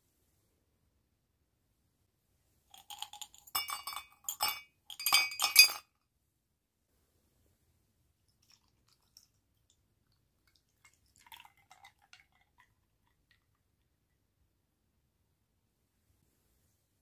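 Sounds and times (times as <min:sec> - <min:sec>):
milk pouring into glass mug: 0:02.7 - 0:05.8, 0:08.3 - 0:14.1.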